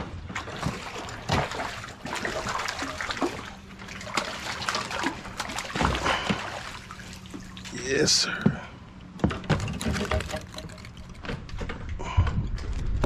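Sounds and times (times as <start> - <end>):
water splashing and trickling: 0.2 - 8.4, 9.5 - 11.4.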